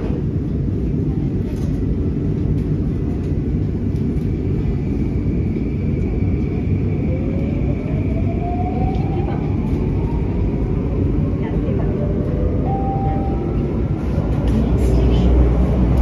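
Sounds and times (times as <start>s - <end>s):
train running rumble: 0.0s - 16.0s.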